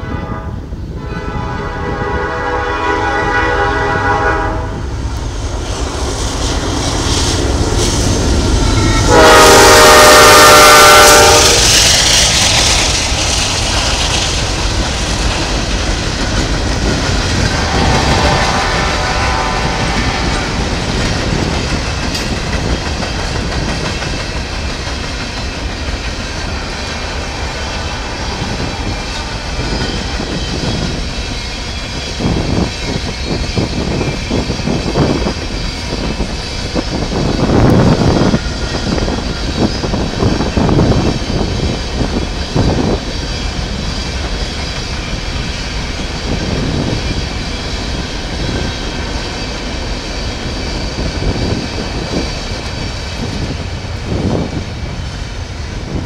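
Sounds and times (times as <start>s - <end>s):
locomotive air horn blast: 0.0s - 4.8s, 8.6s - 11.9s, 17.5s - 20.7s
train rumble: 0.0s - 56.0s
clickety-clack of rolling cars: 10.7s - 56.0s.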